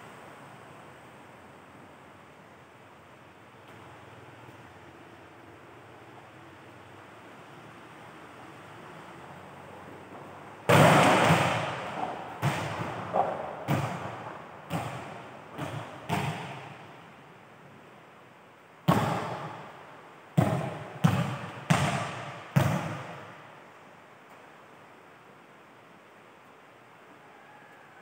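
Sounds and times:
ball bouncing on court: 10.7s - 16.9s, 18.9s - 19.7s, 20.4s - 23.4s
volleyball hit hard: 10.7s - 16.9s, 18.9s - 19.6s, 20.4s - 23.3s.

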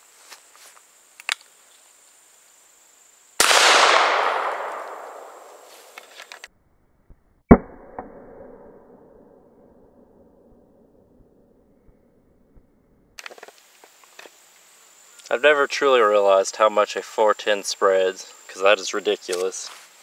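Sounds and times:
loud sharp bang: 3.4s - 6.0s
shotgun shot echoing: 3.4s - 6.0s.

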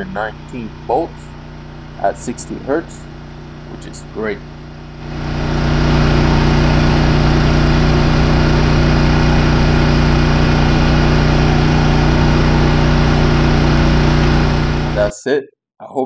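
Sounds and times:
generator engine drone: 0.0s - 15.2s.

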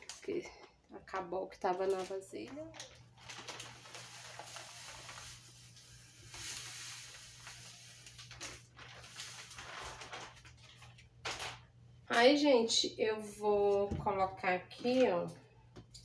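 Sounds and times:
plastic bag rustling: 0.0s - 11.7s
powder pouring hiss: 3.8s - 8.5s.

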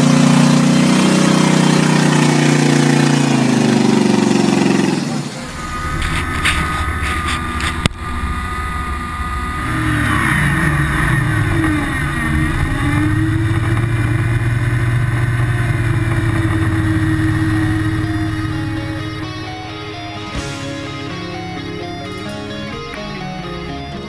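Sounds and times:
buggy engine revving: 0.0s - 24.0s
sharp knock: 20.3s - 22.4s.

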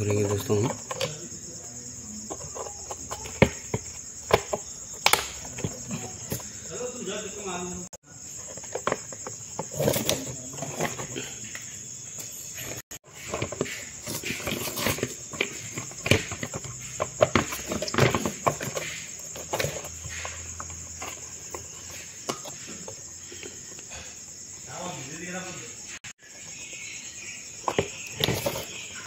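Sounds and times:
plastic parts clicking and knocking: 0.0s - 1.4s, 2.2s - 6.6s, 8.4s - 23.9s
crickets chirping: 0.0s - 29.0s.

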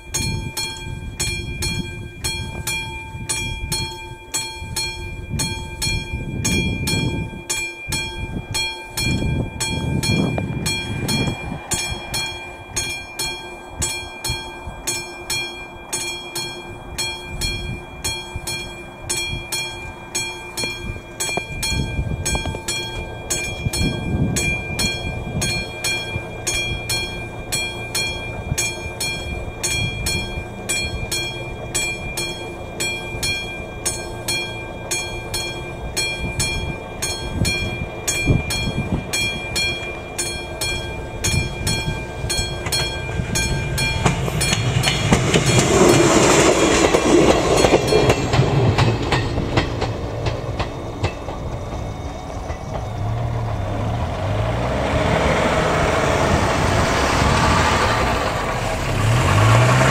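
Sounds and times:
level-crossing warning bell: 0.0s - 59.9s
loud rushing noise: 42.9s - 50.6s, 53.0s - 59.9s.

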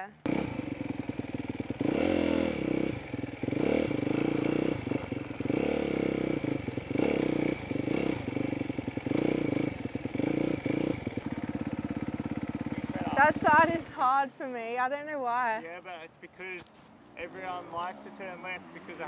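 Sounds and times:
dirt bike engine revving: 0.2s - 14.1s.

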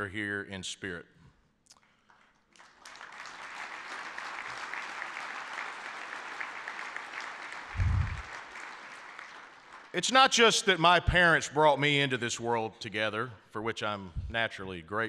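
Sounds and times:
audience applauding: 2.1s - 10.1s
short low thump: 7.8s - 8.2s.

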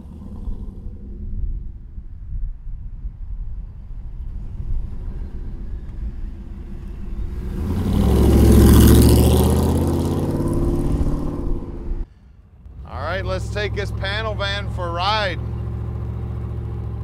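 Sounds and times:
truck engine passing by: 4.2s - 17.0s.

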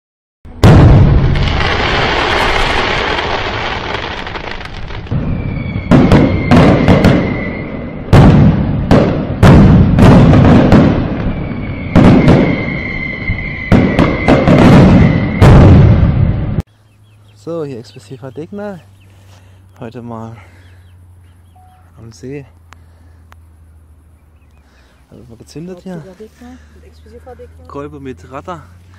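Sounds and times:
loud firework bangs: 0.5s - 16.6s
firework rumble: 0.5s - 16.7s.

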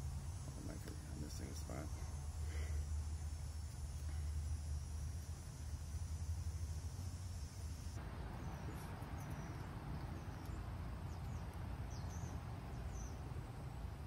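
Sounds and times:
high insect drone: 0.0s - 9.5s.

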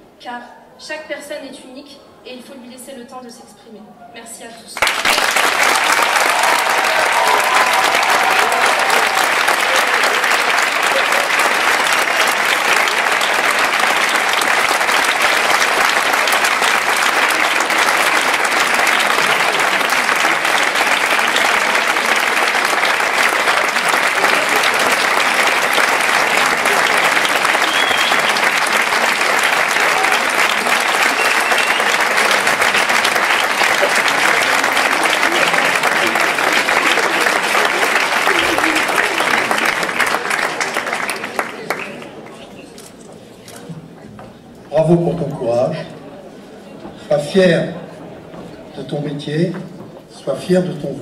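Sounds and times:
crowd applauding: 4.8s - 43.7s.

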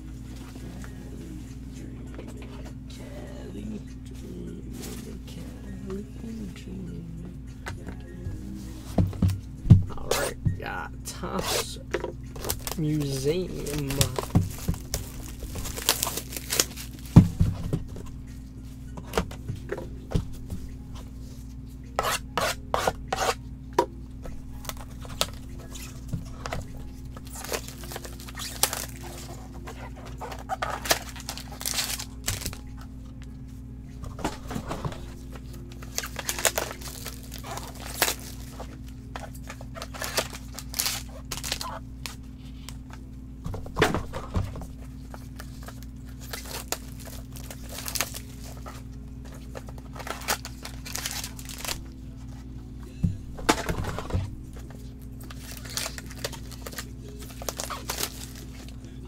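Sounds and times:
steady low hum: 0.0s - 59.0s
plastic shrink wrap crinkling: 12.2s - 18.0s, 24.5s - 32.7s, 35.4s - 42.9s, 44.9s - 52.2s, 54.5s - 58.8s.

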